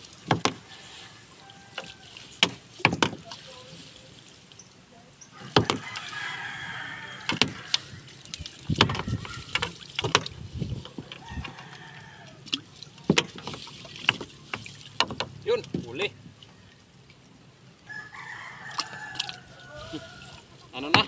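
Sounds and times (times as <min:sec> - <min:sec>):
fishing net knocking on boat hull: 0:00.3 - 0:00.6, 0:02.4 - 0:03.2, 0:05.5 - 0:05.8, 0:07.3 - 0:07.6, 0:08.7 - 0:10.3, 0:13.1 - 0:15.9
distant rooster crowing: 0:00.6 - 0:02.3, 0:05.3 - 0:08.2, 0:08.8 - 0:09.7, 0:11.0 - 0:12.5, 0:17.8 - 0:21.0.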